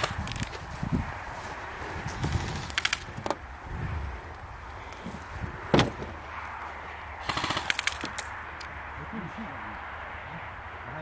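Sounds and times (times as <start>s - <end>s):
airsoft guns firing: 7.2s - 8.3s.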